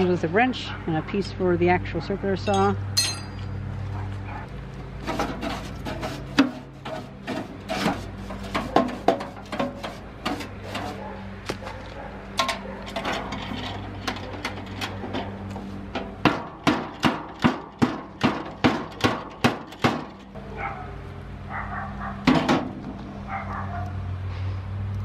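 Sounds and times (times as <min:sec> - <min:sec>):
brush scrubbing inside metal case: 0:05.0 - 0:11.2.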